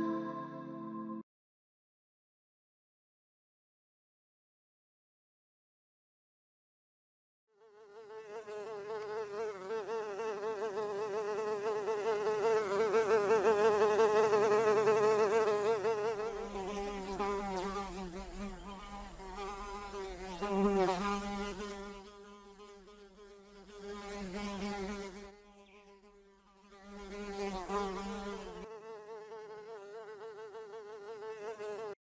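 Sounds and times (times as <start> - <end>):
fly buzzing: 7.6 - 32.0.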